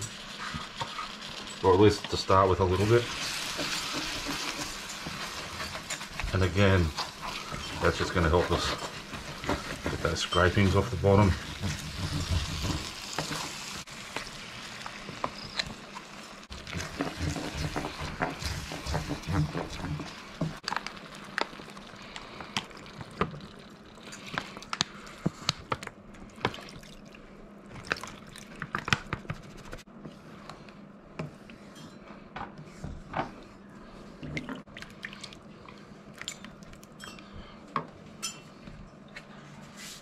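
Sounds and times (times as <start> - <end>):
wooden spoon scraping a pan: 0.0 - 13.8, 16.6 - 20.6.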